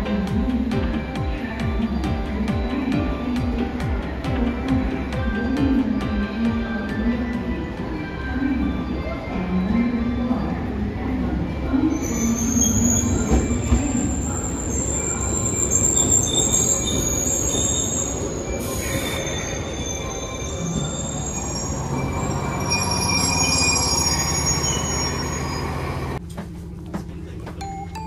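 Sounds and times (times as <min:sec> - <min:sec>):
electric train slowing: 0:00.0 - 0:26.2
metallic brake squeals: 0:12.0 - 0:26.2.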